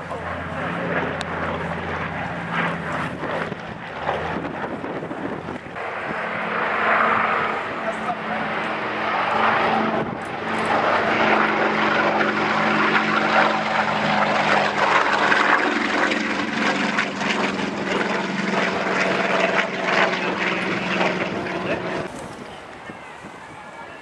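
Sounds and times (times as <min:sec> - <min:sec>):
propeller plane engine droning: 0:00.0 - 0:24.0.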